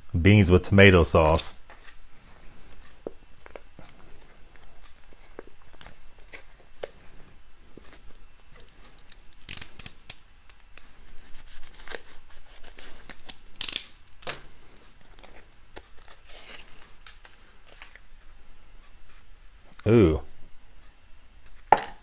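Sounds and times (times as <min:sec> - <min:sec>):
foil pouch tearing and crinkling: 0:16.0 - 0:18.0.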